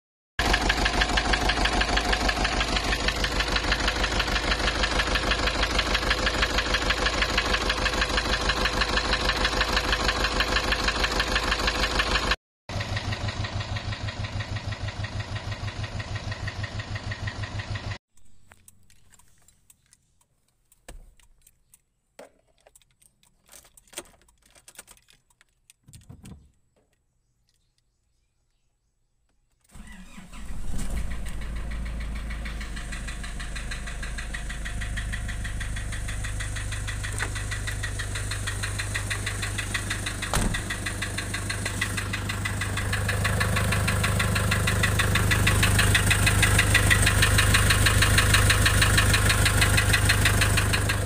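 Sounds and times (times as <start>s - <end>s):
diesel engine idling roughly: 0.4s - 18.0s, 29.8s - 51.0s.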